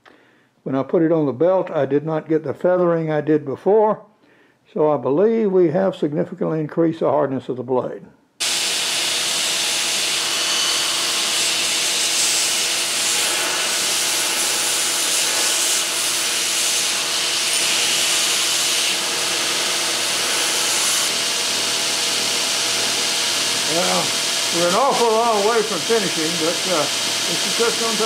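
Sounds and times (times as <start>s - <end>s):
belt sander grinding wood: 8.4s - 28.0s.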